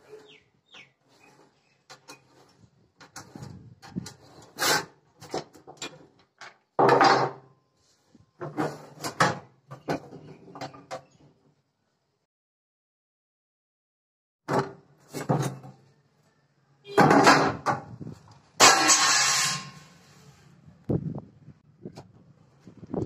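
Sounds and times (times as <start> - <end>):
steel sheet scraping and clunking: 1.0 - 6.2, 8.4 - 11.2, 16.9 - 20.5.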